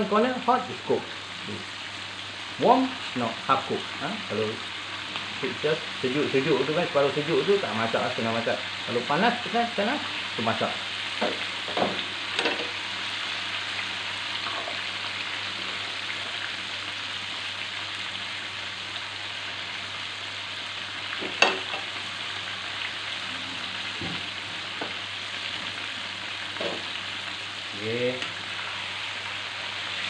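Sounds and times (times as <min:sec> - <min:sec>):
chicken sizzling in oil: 0:00.0 - 0:30.0.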